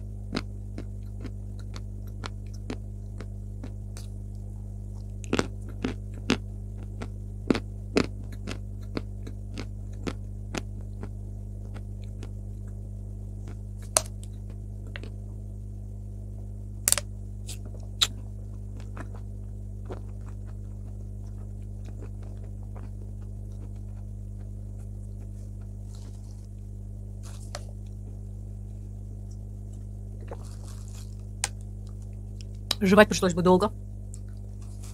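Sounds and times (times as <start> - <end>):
low electrical hum: 0.0 - 34.9
chalk being chewed: 0.4 - 4.1, 19.8 - 26.6, 30.2 - 31.2.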